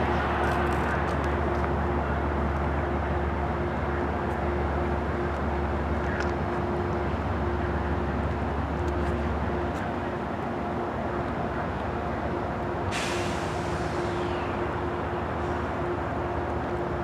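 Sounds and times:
train rumbling: 0.0s - 17.0s
train brakes hissing: 12.9s - 15.8s.

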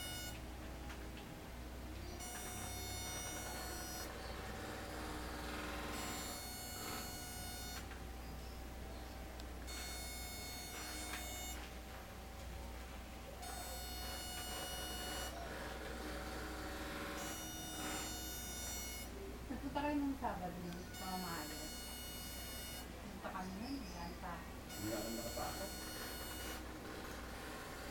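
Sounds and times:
high buzzy pulsed tone: 0.0s - 0.5s, 2.0s - 8.2s, 9.6s - 11.8s, 13.4s - 15.4s, 16.9s - 19.3s, 20.2s - 23.6s, 24.7s - 26.7s
steady low electrical hum: 0.0s - 27.9s.

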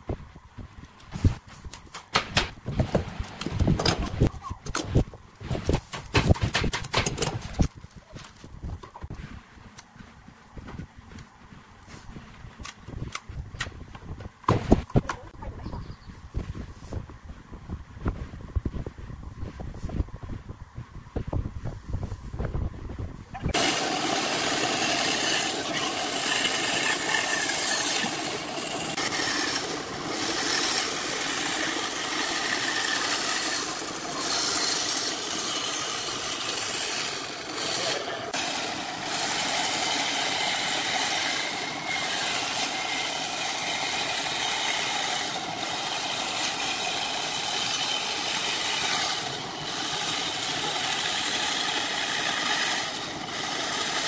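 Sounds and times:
lathe tool scraping wood: 23.5s - 54.0s.

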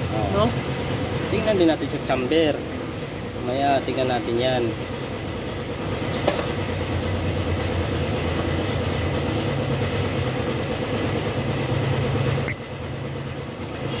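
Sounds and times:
machine rumbling: 0.0s - 14.0s.

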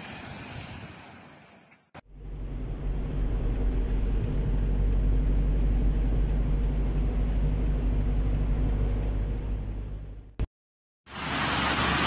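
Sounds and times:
road and wind noise in car: 0.0s - 10.4s, 11.1s - 12.0s.

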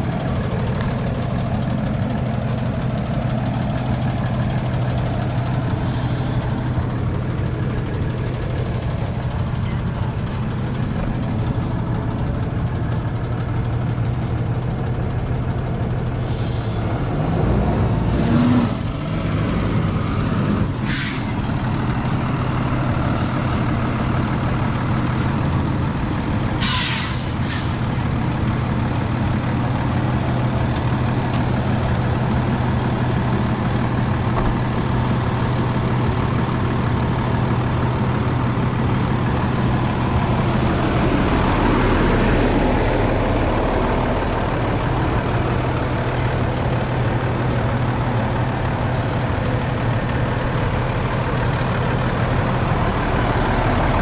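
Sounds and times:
truck engine running: 0.0s - 54.0s
air hissing bursts: 20.8s - 21.4s, 26.6s - 27.8s.

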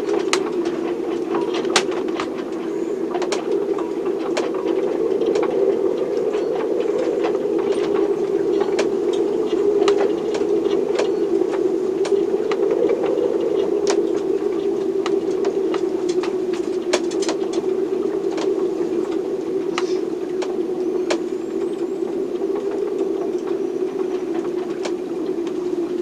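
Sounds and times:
steady storm hum: 0.0s - 26.0s.

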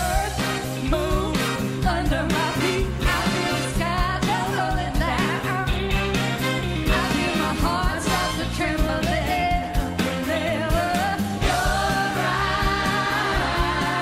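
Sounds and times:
live band with drum beat: 0.0s - 14.0s
women singing a pop-rock duet: 0.0s - 14.0s.

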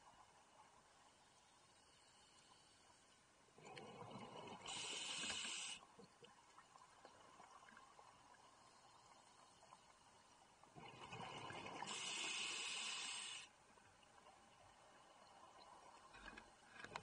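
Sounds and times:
hiss of exhaled bubbles: 3.6s - 5.8s, 10.8s - 13.5s
diver inhaling through regulator: 4.7s - 5.8s, 11.9s - 13.5s.

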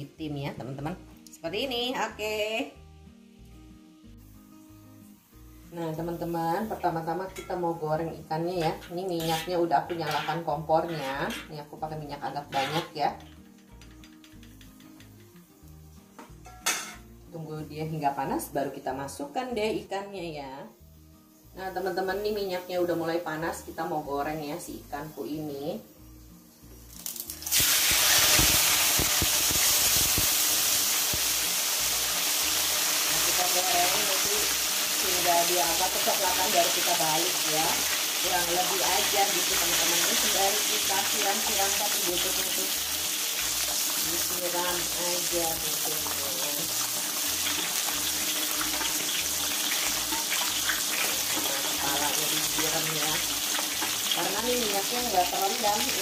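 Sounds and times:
fish sizzling in hot oil: 0.1s - 56.0s
oil popping and crackling: 12.5s - 15.4s, 26.9s - 56.0s.

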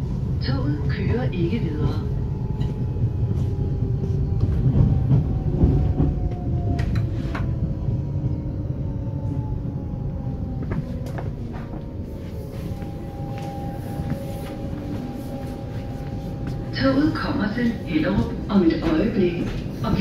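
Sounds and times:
wheels rumbling on rail: 0.0s - 20.0s
electric train inverter whine: 5.6s - 20.0s.

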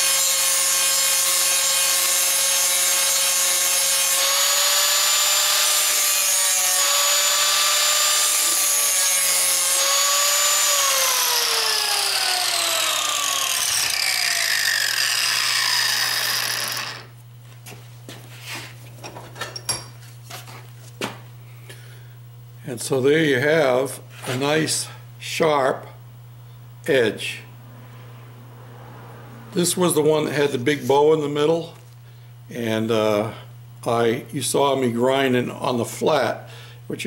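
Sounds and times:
angle grinder grinding steel: 0.0s - 17.2s.

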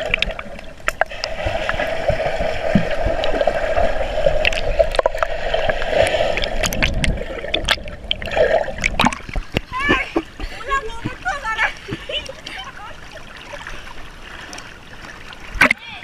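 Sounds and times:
muffled underwater rushing and bubbling: 0.0s - 16.0s
swimmers kicking clicks and knocks: 0.0s - 16.0s.

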